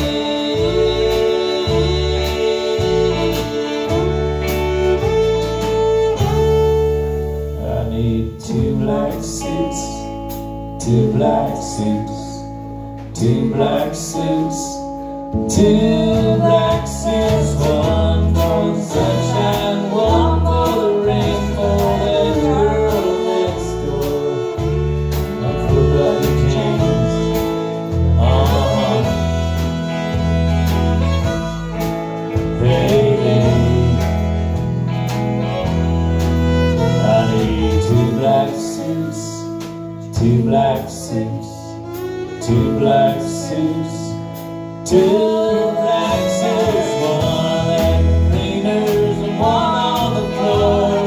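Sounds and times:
drums: 0.0s - 51.0s
electric bass: 0.0s - 51.0s
electric guitar: 0.0s - 51.0s
fiddle: 0.0s - 51.0s
woman singing: 15.5s - 24.8s.

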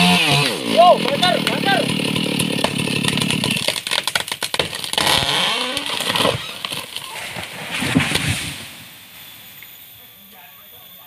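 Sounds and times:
trunk cracking and splitting: 0.0s - 8.7s
chainsaw cutting: 0.0s - 8.9s
twigs rustling and snapping: 1.1s - 8.4s
tree crashing through branches: 1.9s - 9.0s.

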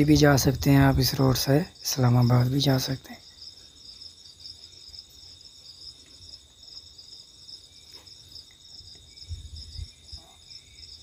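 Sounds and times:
pulsing insect chirping: 0.0s - 11.0s.

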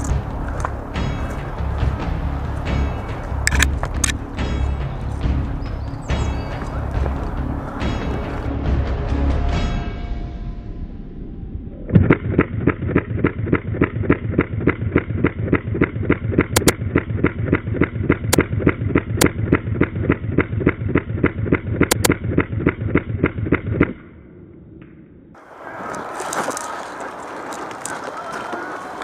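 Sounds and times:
pulsing backing track: 0.0s - 9.3s
sharp clicks: 2.6s - 4.2s, 11.9s - 24.0s.

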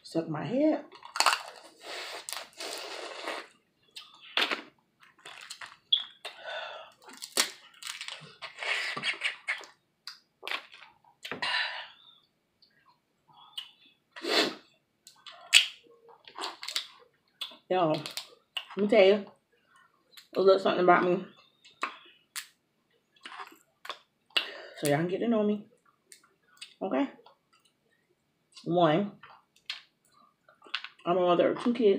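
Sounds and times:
chewing: 0.9s - 6.4s, 23.2s - 24.4s
sucking: 1.4s - 4.7s, 5.3s - 9.7s, 13.5s - 14.6s.

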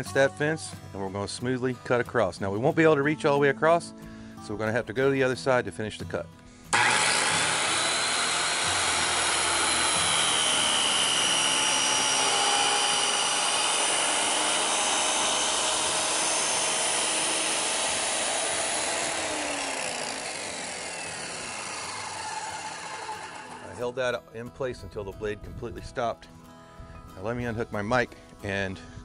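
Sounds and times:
circular saw cutting plastic: 6.8s - 23.8s.

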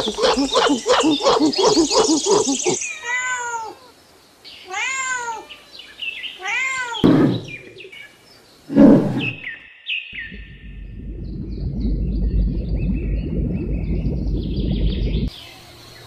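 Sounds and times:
cat meowing: 2.9s - 3.9s.

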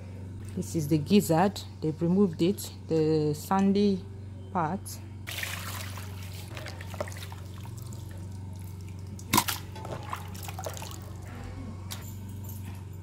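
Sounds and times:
water dripping and splashing: 6.8s - 11.1s.

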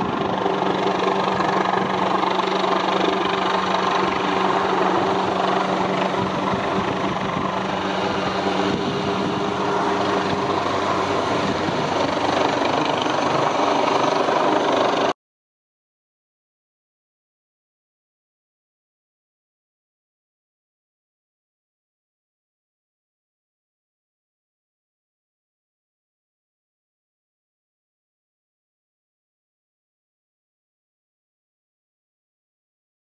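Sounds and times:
low hum: 0.0s - 15.1s
helicopter hovering: 0.0s - 15.2s.

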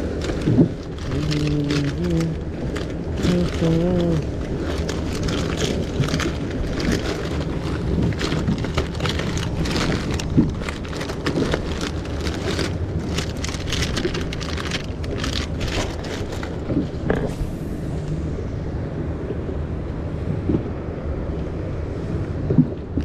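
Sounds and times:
hands rummaging in fabric bag: 0.0s - 16.8s
plastic packets crinkling: 0.0s - 16.9s
steady low rumble: 0.0s - 23.0s.

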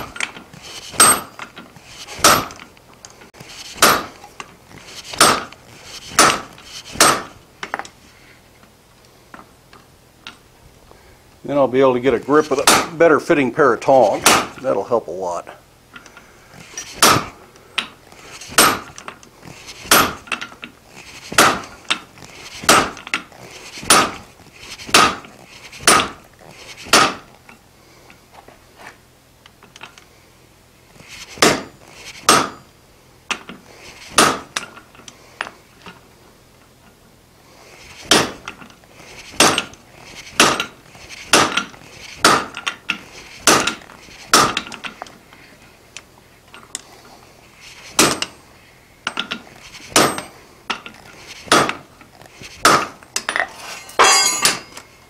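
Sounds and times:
hammer striking steel on anvil: 2.2s - 2.6s, 3.8s - 4.2s, 5.2s - 5.5s, 6.2s - 7.3s, 12.6s - 13.0s, 14.2s - 14.6s, 18.6s - 18.9s, 19.9s - 20.2s, 32.3s - 32.7s, 52.7s - 54.8s.

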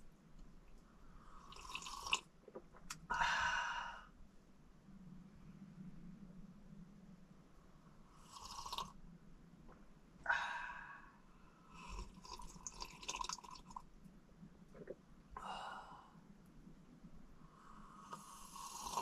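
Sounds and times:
sips and slurps from mugs: 1.4s - 2.3s, 8.3s - 9.0s, 11.8s - 13.8s, 18.6s - 19.0s.

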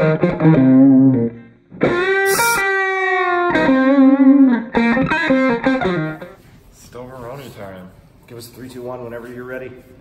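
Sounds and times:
distorted electric guitar riffs: 0.0s - 6.4s.

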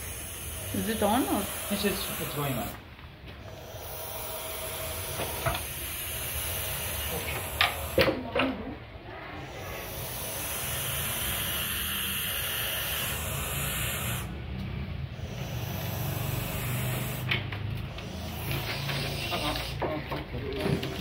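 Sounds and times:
owlets hissing: 0.0s - 8.5s, 9.2s - 19.9s.

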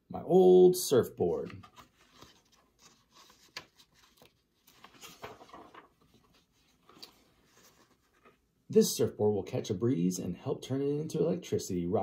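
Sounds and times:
book handling rustle: 1.3s - 8.5s
page turning clicks: 1.4s - 5.9s.

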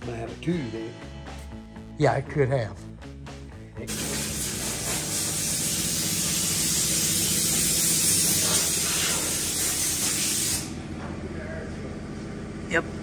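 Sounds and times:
compressed air hissing: 3.9s - 10.8s.

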